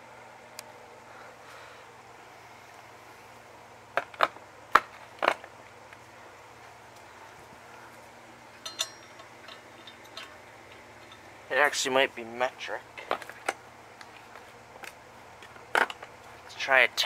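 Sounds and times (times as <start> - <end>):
metal tools clinking: 8.6 - 11.3
metallic clatter with ringing: 8.6 - 11.3.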